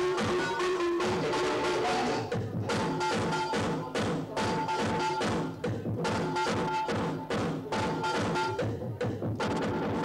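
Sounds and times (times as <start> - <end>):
techno music: 0.0 - 10.0.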